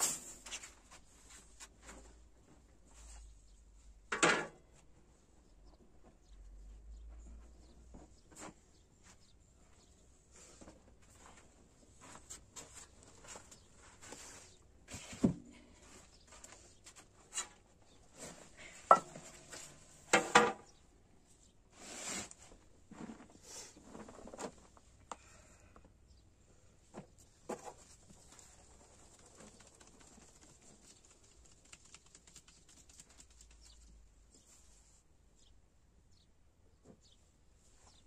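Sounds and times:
metal pots knocking and clinking: 0:18.9 - 0:19.4.

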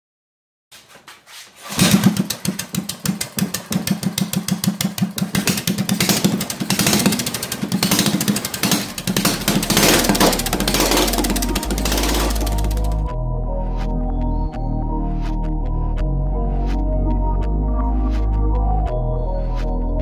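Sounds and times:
small engine running loudly: 0:02.2 - 0:13.1.

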